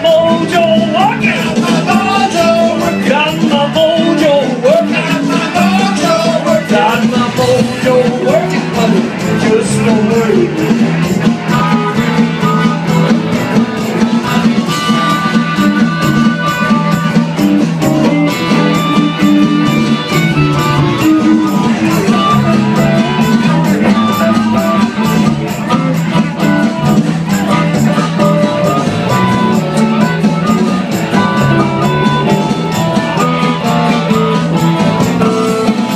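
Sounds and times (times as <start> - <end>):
man singing into a microphone: 0.0 - 13.0, 13.8 - 16.7
blues band playing: 0.0 - 35.9.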